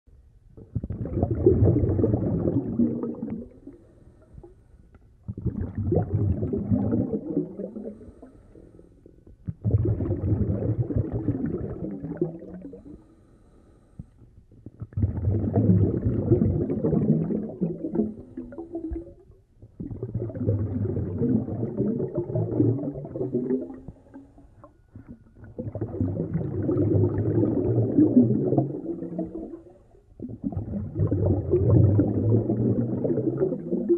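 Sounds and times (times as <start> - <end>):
gurgling exhaled bubbles: 0.6 - 4.5, 5.2 - 8.4, 9.4 - 13.0, 14.6 - 33.9
diver breathing through regulator: 7.8 - 9.0, 12.8 - 14.2.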